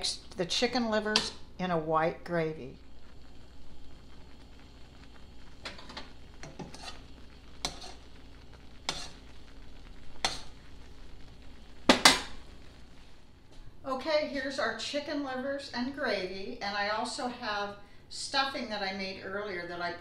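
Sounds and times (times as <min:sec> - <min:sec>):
metal spoon scraping a pan: 0:05.6 - 0:09.3, 0:10.2 - 0:10.6.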